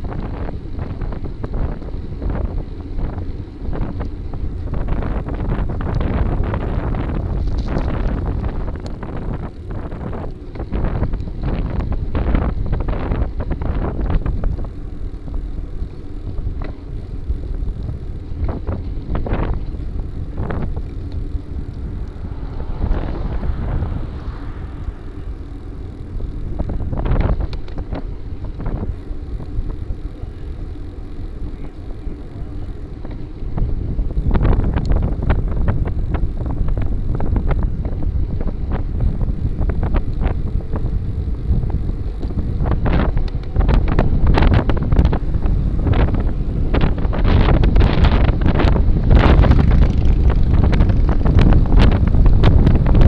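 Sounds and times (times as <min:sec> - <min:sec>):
wind buffeting microphone: 0:00.0 - 0:53.0
tyre rolling on asphalt: 0:00.5 - 0:34.3.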